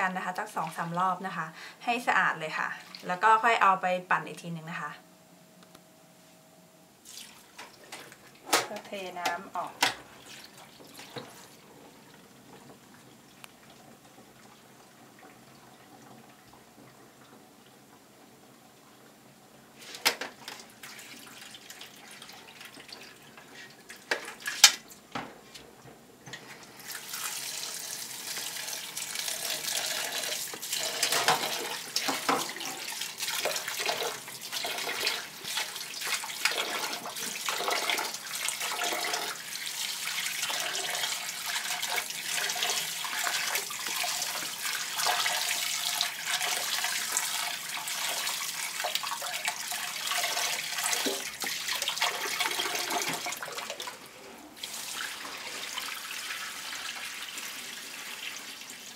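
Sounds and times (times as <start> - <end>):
tap running into bowl: 30.5 - 34.2.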